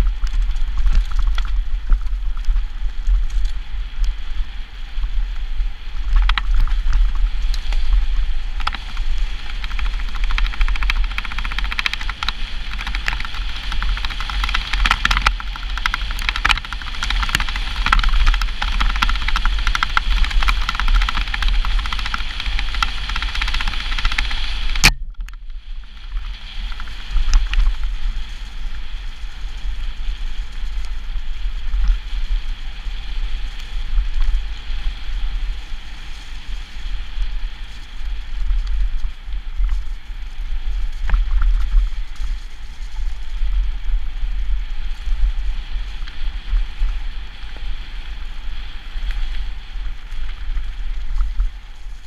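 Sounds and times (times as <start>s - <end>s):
bike rattling clicks: 0.0s - 4.4s, 6.0s - 31.0s
wind buffeting microphone: 0.0s - 52.0s
sharp bike click: 6.2s - 27.8s.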